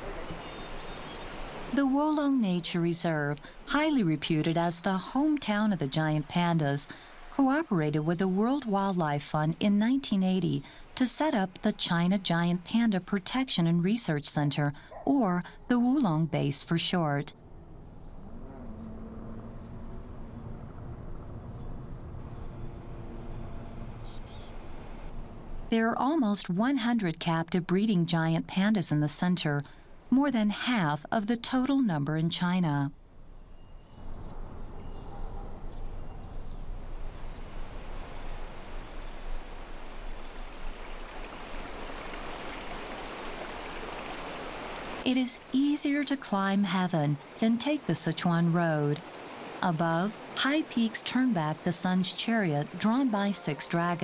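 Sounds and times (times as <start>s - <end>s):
low background noise: 0.0s - 54.0s
insects chirring: 14.9s - 26.6s, 32.8s - 54.0s.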